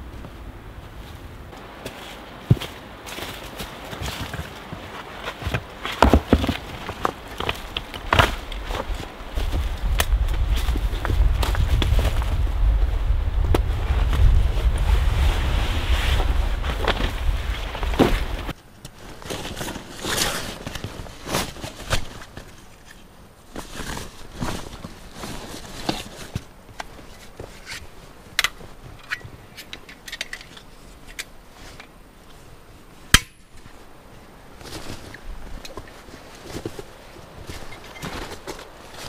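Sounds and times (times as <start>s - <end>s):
straps and buckles clicking: 23.6s - 32.0s.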